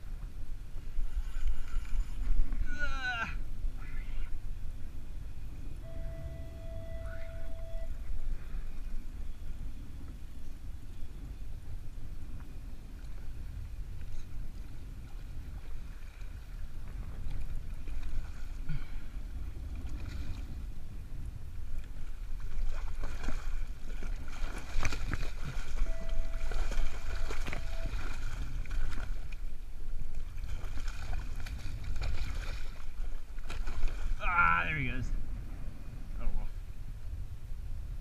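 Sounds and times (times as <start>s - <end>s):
low rumble of wind and water: 0.0s - 38.0s
water splashing: 21.8s - 35.0s.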